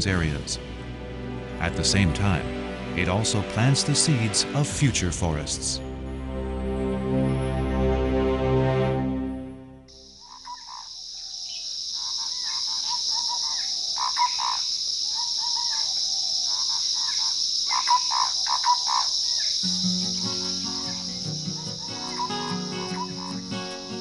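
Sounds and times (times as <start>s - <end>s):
soft music: 0.0s - 9.9s, 19.6s - 24.0s
high insect drone: 9.9s - 24.0s.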